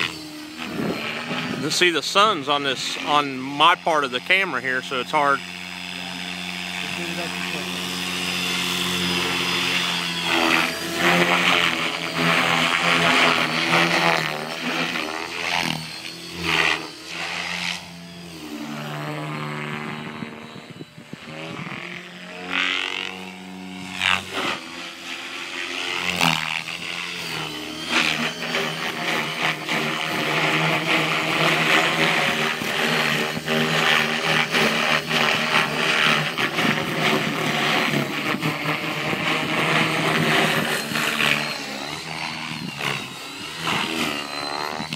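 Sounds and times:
rc helicopter rotor drone: 0:00.0 - 0:44.9.

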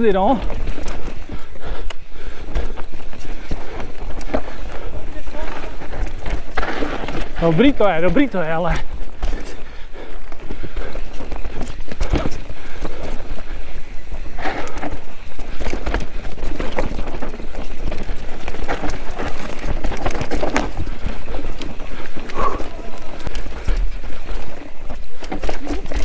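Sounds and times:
bike clattering over bumps: 0:00.0 - 0:26.0
tyres rolling over dirt and rock: 0:00.0 - 0:26.0
wind noise on microphone: 0:08.7 - 0:26.0.

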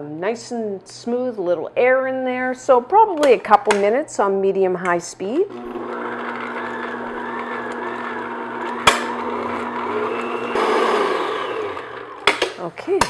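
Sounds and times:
mixer click: 0:05.5 - 0:12.6
stand mixer motor running: 0:05.5 - 0:12.6.

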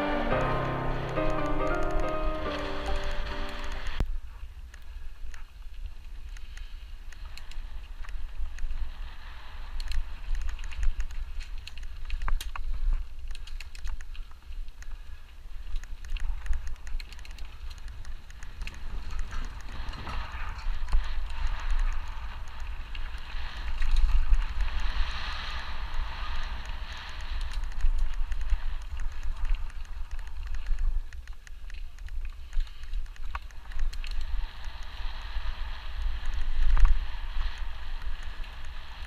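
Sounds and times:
bike clicks and rattles: 0:04.6 - 0:08.9, 0:09.6 - 0:39.0
bike tyres hissing on dirt: 0:06.4 - 0:10.3, 0:18.8 - 0:29.4, 0:33.6 - 0:39.0
wind buffeting microphone: 0:16.2 - 0:31.2.

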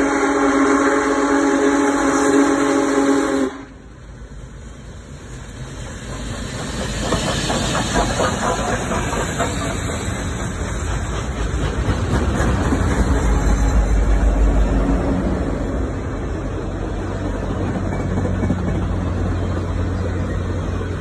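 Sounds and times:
steam hissing: 0:00.0 - 0:21.0
locomotive running gear clanking: 0:05.7 - 0:13.9.

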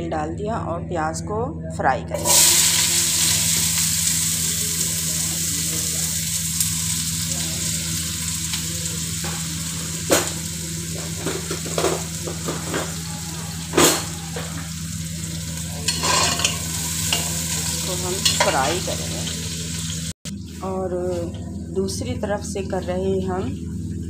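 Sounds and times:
onions sizzling in oil: 0:02.2 - 0:20.2
spoon knocking on pot: 0:11.2 - 0:14.7.

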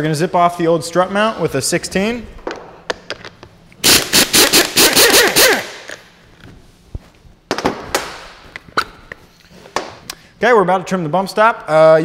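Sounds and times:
pneumatic impact wrench hammering: 0:03.8 - 0:06.0.

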